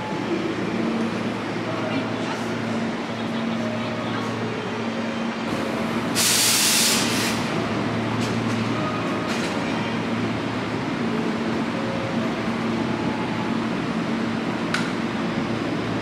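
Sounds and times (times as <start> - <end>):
hiss of compressed air: 6.2 - 7.5.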